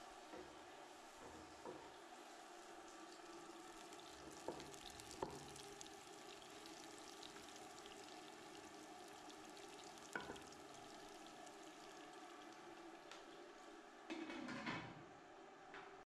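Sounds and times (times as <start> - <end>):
onions sizzling in oil: 0.0 - 12.8.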